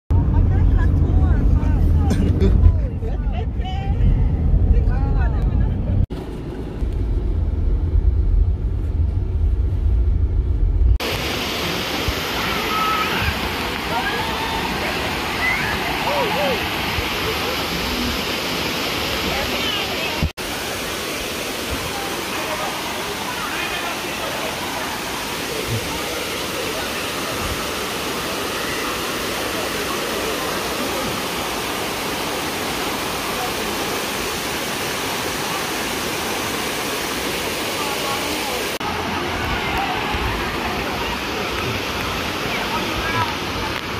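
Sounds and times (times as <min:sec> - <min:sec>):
vehicle engine and road noise: 0:00.1 - 0:11.1
waterfall rushing: 0:11.0 - 0:43.9.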